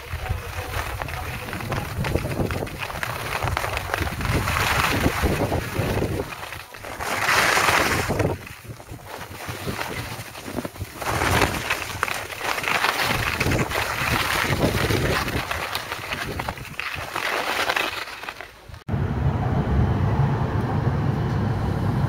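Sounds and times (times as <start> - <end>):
wind on the microphone: 0.0 - 17.0
skis scraping over snow: 0.0 - 18.8.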